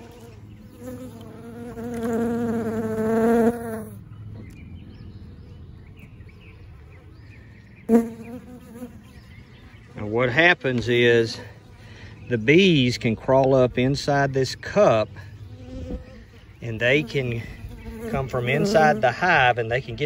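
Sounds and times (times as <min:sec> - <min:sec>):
honeybees buzzing: 0:00.0 - 0:04.0, 0:07.8 - 0:13.1, 0:15.2 - 0:20.0.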